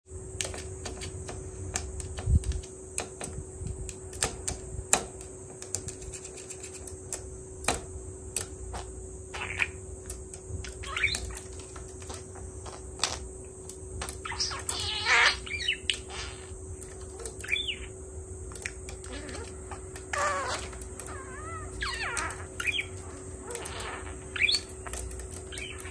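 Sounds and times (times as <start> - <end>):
faint steady hum: 0.1 - 25.9
budgerigar chirps: 8.8 - 9.8, 10.7 - 11.5, 14.2 - 25.9
beak tapping on mirror: 18.5 - 25.9.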